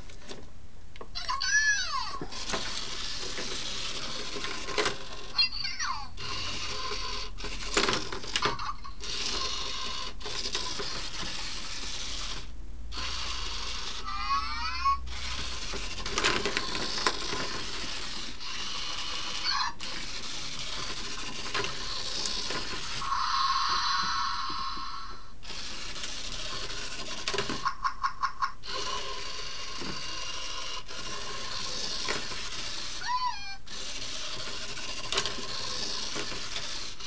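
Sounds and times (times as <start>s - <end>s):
toy motor whirring: 1.2s - 37.0s
toy chirping: 19.4s - 19.8s, 32.9s - 34.3s.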